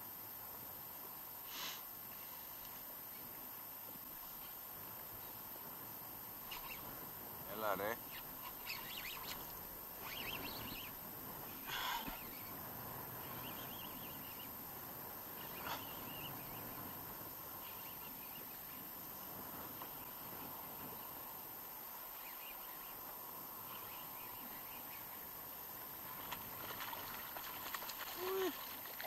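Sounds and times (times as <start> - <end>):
wind: 0.0 - 29.0
choppy sea water lapping: 26.0 - 29.0.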